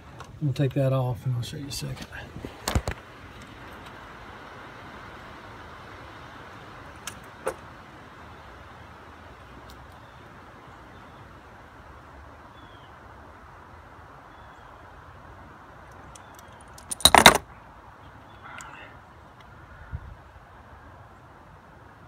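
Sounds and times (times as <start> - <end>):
faint steady hiss: 0.0 - 22.0
metallic clinking and rattling: 16.2 - 17.4.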